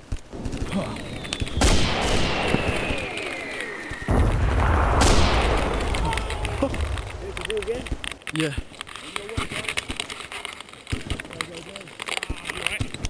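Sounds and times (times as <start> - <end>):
falling whistle: 1.1 - 4.3
deep heavy boom: 4.1 - 8.0
sharp bang: 4.1 - 8.0.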